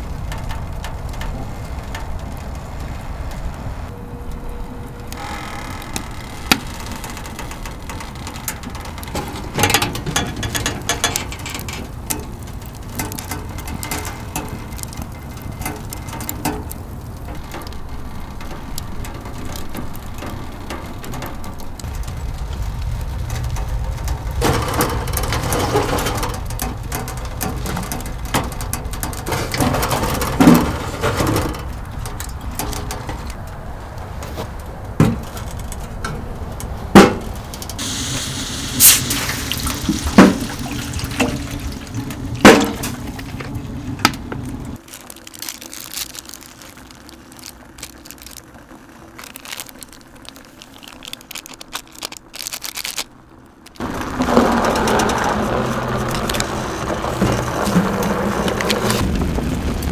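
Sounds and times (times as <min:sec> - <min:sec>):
wood fire rumbling and popping: 0:00.0 - 0:59.9
water pouring into steel pan: 0:37.8 - 0:43.2.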